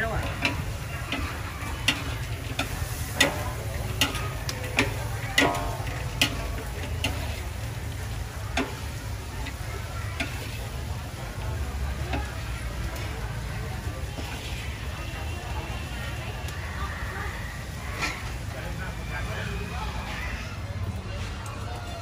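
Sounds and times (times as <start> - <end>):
oil sizzling: 0.0 - 21.8
metal spatula clanking on wok: 0.1 - 10.6.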